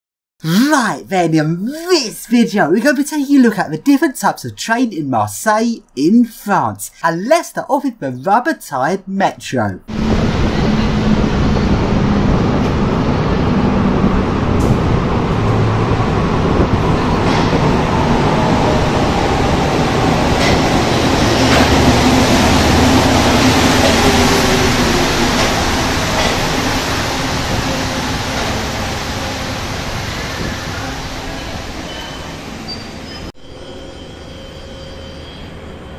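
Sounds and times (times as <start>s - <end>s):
metro train rushing noise: 9.9s - 35.9s.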